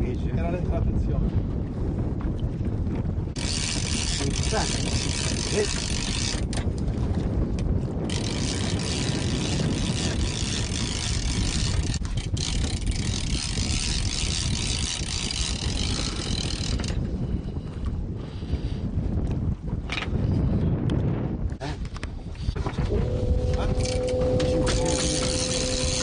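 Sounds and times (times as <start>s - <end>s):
low boat rumble: 0.0s - 18.6s, 22.2s - 26.0s.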